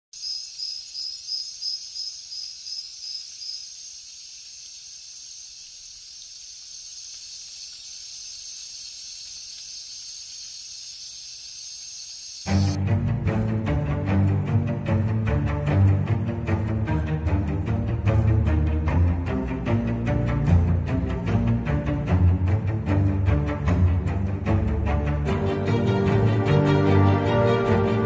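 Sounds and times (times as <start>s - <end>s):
insects chirping: 0.2s - 12.8s
bowed string music: 12.5s - 28.0s.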